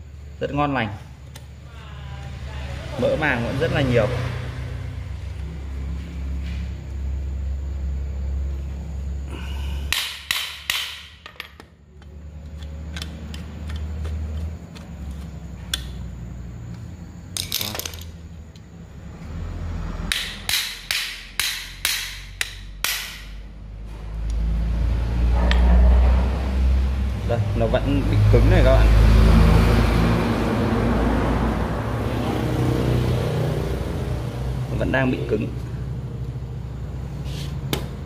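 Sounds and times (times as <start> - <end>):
sharp knocks on metal: 9.9 - 11.7, 20.1 - 23.4.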